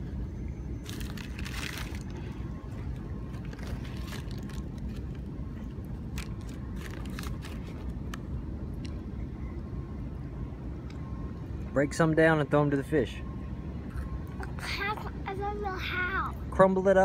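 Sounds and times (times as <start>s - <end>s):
steady low rumble: 0.0s - 17.0s
plastic snack bag crinkling: 0.8s - 2.2s, 3.3s - 5.2s, 6.1s - 7.9s.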